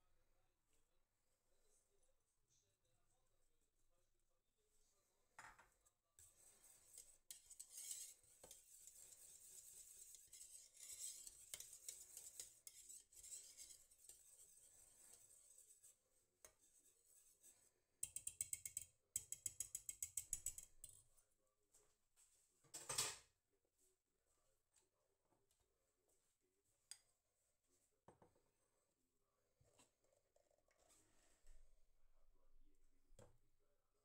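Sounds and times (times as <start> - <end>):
whisk scraping metal pot: 6.2 - 15.9.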